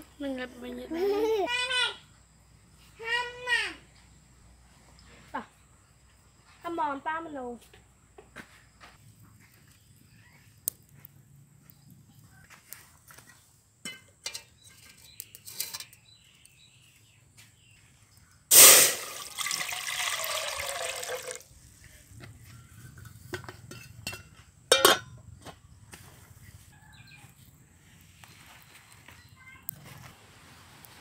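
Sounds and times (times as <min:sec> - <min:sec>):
metal lid clank: 0:18.5 - 0:19.2, 0:23.4 - 0:25.1
water pouring into metal pot: 0:18.5 - 0:21.5.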